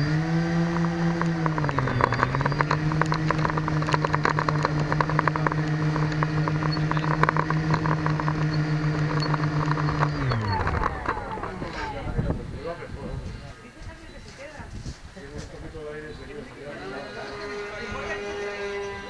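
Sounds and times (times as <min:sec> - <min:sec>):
model car motor running: 0:00.0 - 0:12.2, 0:16.8 - 0:19.0
small clicks: 0:00.7 - 0:11.2.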